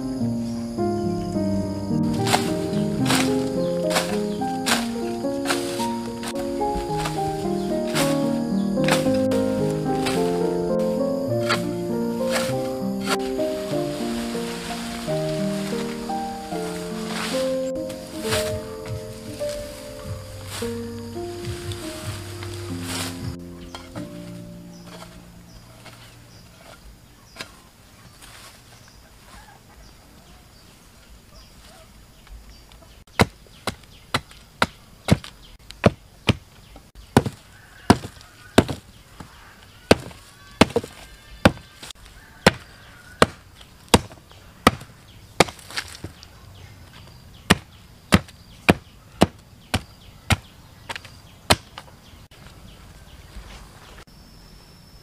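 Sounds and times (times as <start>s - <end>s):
blade chopping branches on a log: 2.2s - 20.8s, 21.4s - 25.2s, 37.1s - 46.2s, 47.5s - 51.9s.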